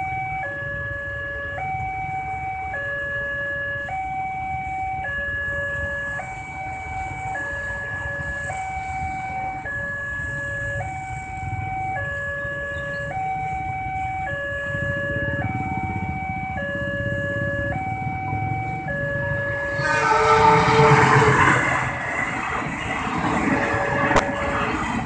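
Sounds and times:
two-tone level crossing alarm: 0:00.0 - 0:24.8.

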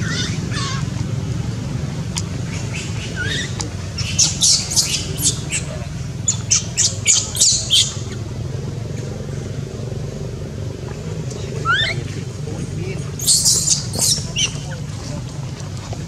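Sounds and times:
baby monkey crying: 0:00.0 - 0:00.9, 0:13.2 - 0:14.5
steady low hum: 0:00.0 - 0:16.0.

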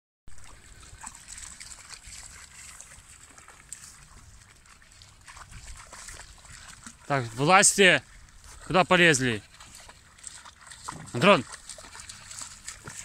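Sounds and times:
dogs splashing through water: 0:00.3 - 0:13.0.

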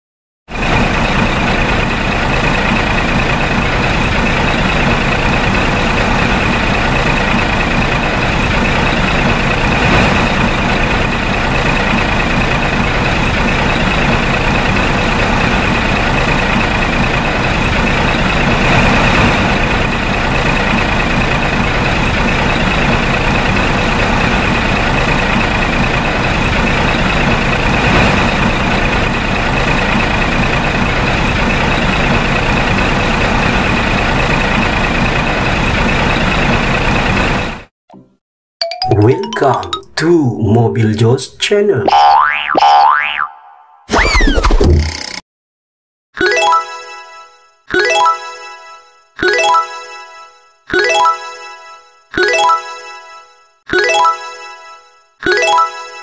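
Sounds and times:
dump truck engine running: 0:00.5 - 0:37.7.

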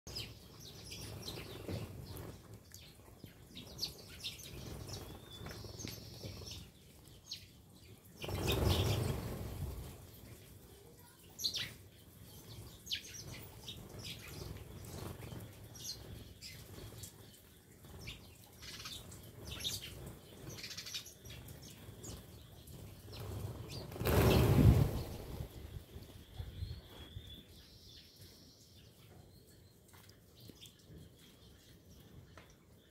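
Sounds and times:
sparrows chirping: 0:00.1 - 0:32.9
wings flapping: 0:08.2 - 0:10.2, 0:22.1 - 0:26.2.

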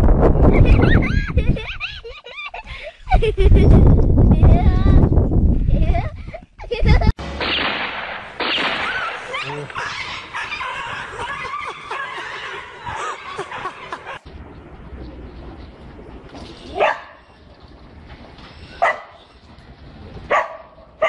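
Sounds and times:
dog barking: 0:16.8 - 0:17.2, 0:18.8 - 0:19.2, 0:20.3 - 0:20.7.

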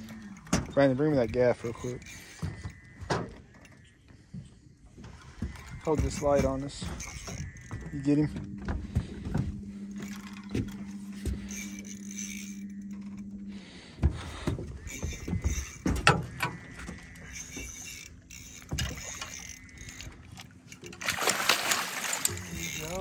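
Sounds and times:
knocks and clatter on boat: 0:00.0 - 0:23.0
steady low hum: 0:00.0 - 0:23.0
fish splashing: 0:16.9 - 0:23.0.

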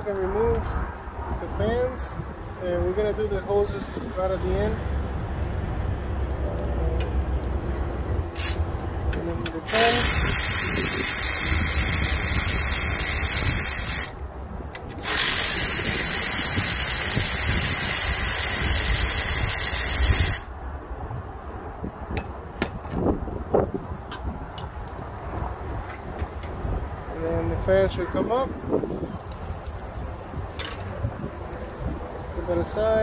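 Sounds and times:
cordless ratchet running: 0:08.3 - 0:08.6, 0:09.6 - 0:14.2, 0:15.0 - 0:20.5.

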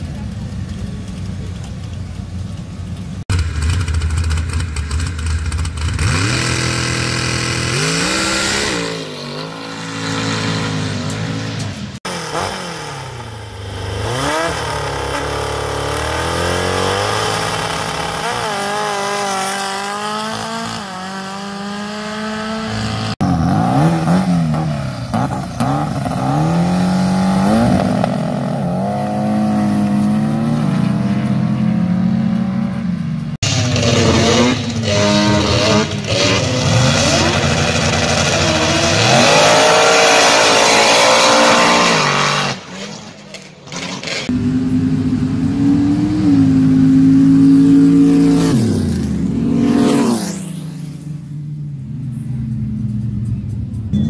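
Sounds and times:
race car engines revving: 0:00.0 - 0:54.0.

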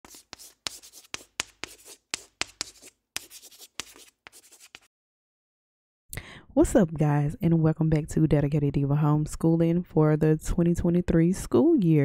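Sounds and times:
pen scratching while writing: 0:00.0 - 0:04.9.

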